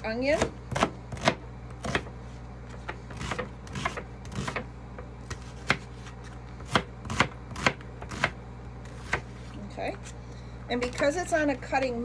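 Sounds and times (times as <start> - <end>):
knife slicing onion on cutting mat: 0.3 - 9.5.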